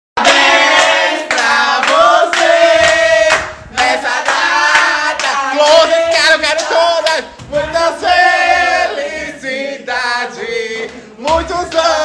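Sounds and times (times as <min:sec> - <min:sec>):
hand claps: 0:00.2 - 0:07.4, 0:10.8 - 0:12.0
group of voices singing: 0:00.2 - 0:12.0.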